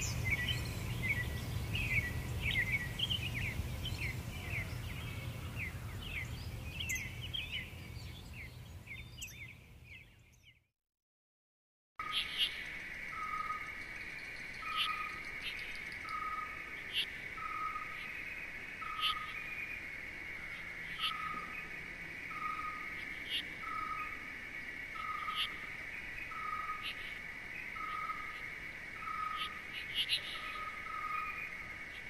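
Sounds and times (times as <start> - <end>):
insect trill: 12.0 - 32.0.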